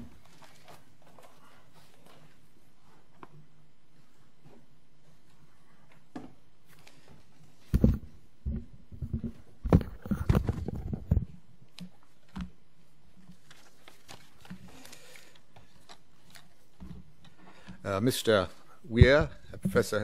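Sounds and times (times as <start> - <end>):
paper rustling: 0.0 - 3.0, 13.1 - 17.0
microphone handling knocks and thumps: 7.6 - 11.4, 18.9 - 20.0.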